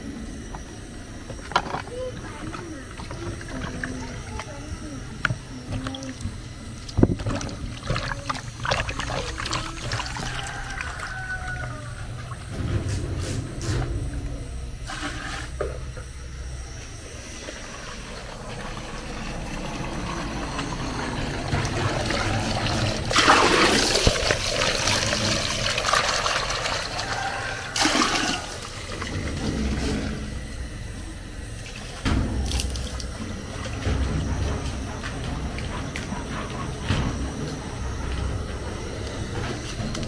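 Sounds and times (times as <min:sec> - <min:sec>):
water pouring and splashing: 0:05.7 - 0:11.6, 0:17.4 - 0:30.1, 0:31.6 - 0:34.6.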